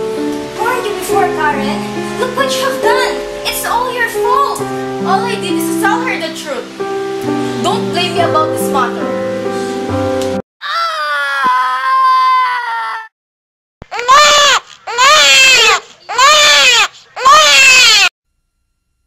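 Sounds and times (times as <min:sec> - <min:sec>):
newborn baby crying: 0:13.9 - 0:18.1.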